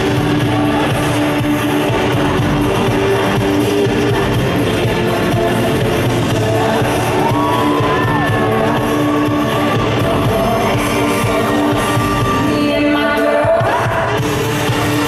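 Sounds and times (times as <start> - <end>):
loud band track: 0.0 - 15.0
woman singing into a microphone: 0.4 - 15.0
crowd shouts and whoops: 6.3 - 14.2.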